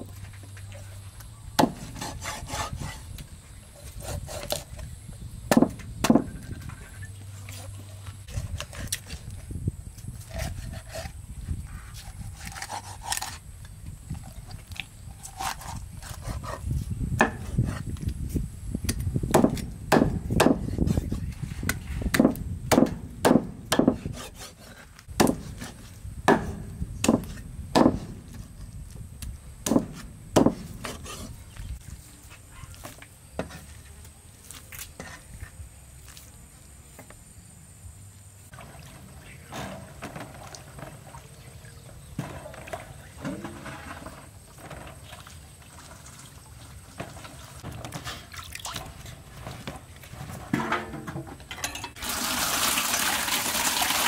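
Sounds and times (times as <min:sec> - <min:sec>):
meat cleaver chopping on wood: 0:19.3 - 0:20.7, 0:22.1 - 0:24.6, 0:25.2 - 0:25.7.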